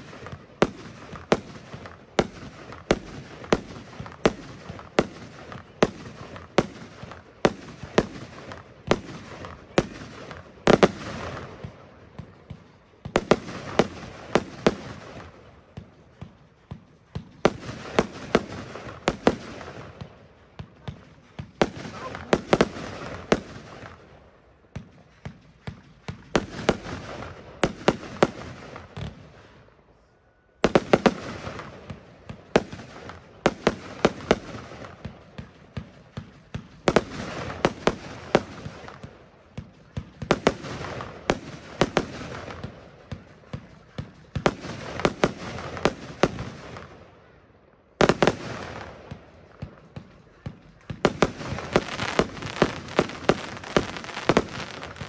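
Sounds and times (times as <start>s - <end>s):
fireworks banging: 0.0s - 29.7s, 30.6s - 47.0s, 48.0s - 55.0s
fireworks crackling: 0.0s - 30.0s, 30.6s - 47.1s, 48.0s - 55.0s.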